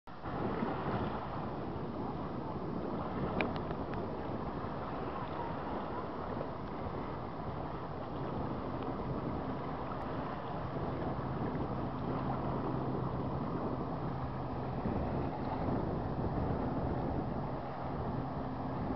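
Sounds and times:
small waves lapping on sand: 0.1s - 18.9s
wind rumbling on microphone: 0.1s - 18.9s.

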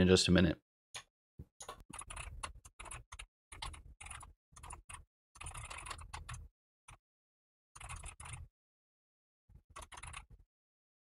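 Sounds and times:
computer keyboard typing: 1.0s - 6.5s, 7.8s - 8.5s, 9.7s - 10.4s.

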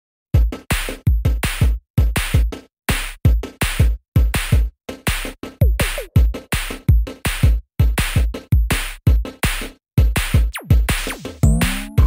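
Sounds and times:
drum machine beat: 0.4s - 12.0s.

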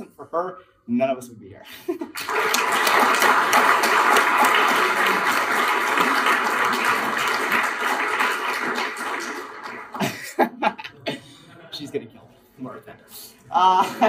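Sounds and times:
audience applauding: 2.1s - 10.4s.

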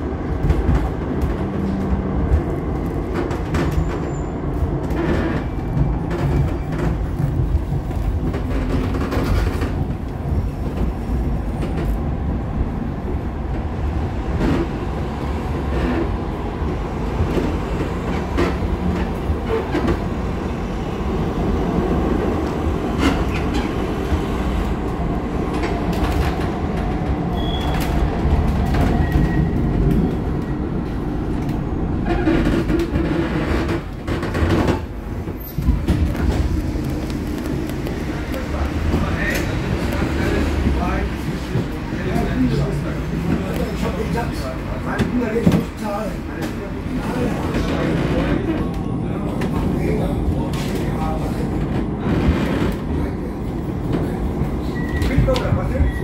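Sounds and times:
rail car wheels rumbling: 0.0s - 56.0s.

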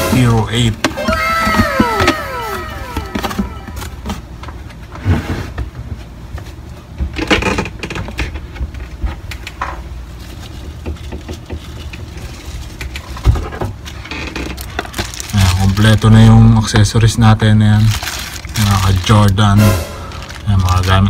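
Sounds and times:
small items knocking: 0.8s - 4.2s
plastic packaging rustling: 10.1s - 21.0s.

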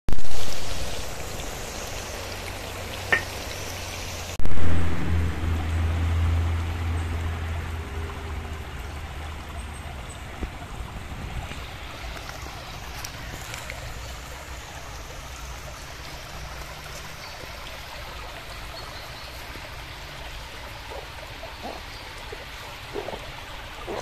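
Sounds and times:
stream running over stones: 0.1s - 24.0s
deep low hum: 4.4s - 9.5s.

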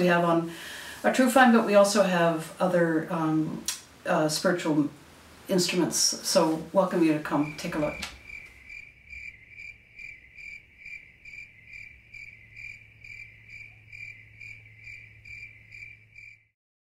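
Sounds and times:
low steady hum: 0.0s - 15.6s
cricket chirping: 7.4s - 16.5s.

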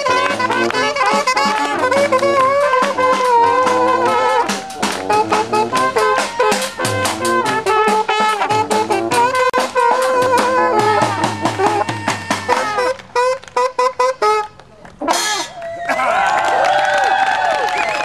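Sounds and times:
brass band playing fast tune: 0.0s - 15.6s.

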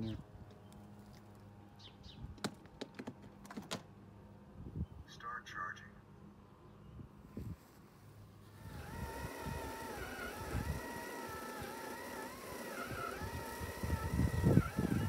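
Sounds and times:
robot lawnmower motor whining: 8.4s - 15.0s.

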